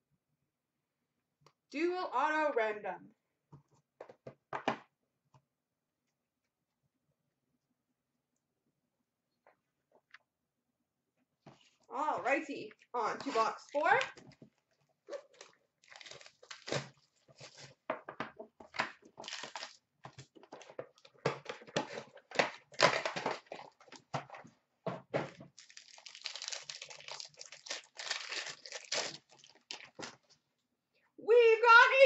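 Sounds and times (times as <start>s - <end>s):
plastic wrapping crinkling and tearing: 15.1s - 17.8s, 19.2s - 24.0s, 25.4s - 30.4s.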